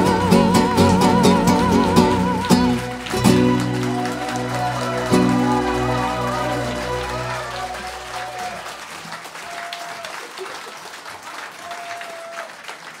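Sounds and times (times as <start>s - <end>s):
folk song chord: 0.0s - 8.8s
audience applause: 0.0s - 13.0s.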